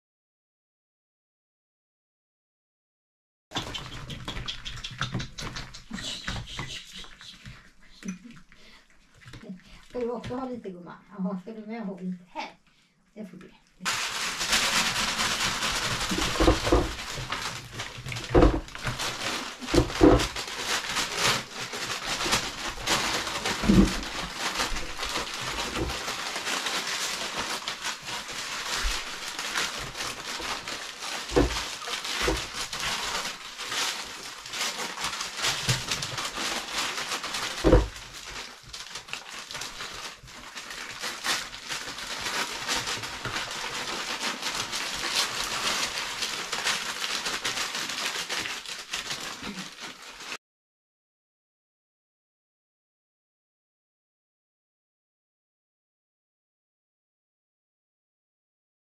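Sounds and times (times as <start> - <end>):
paper rustling and crinkling: 3.6 - 10.4, 13.8 - 50.4.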